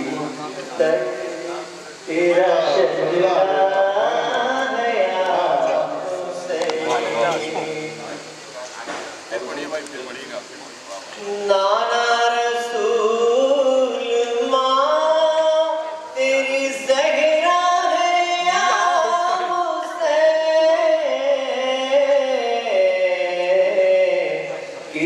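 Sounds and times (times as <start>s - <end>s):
man singing unaccompanied: 0.0s - 8.5s, 11.0s - 25.0s.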